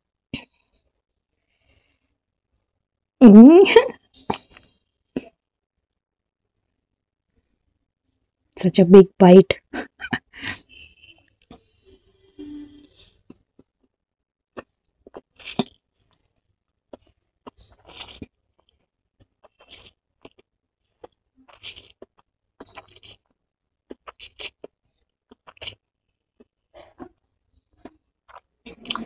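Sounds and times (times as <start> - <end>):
chewing and slurping noodles: 14.6 - 16.2, 16.9 - 29.0.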